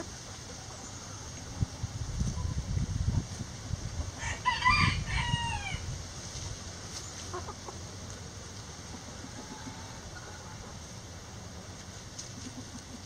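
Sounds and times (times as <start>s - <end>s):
rooster crowing: 4.2s - 5.9s.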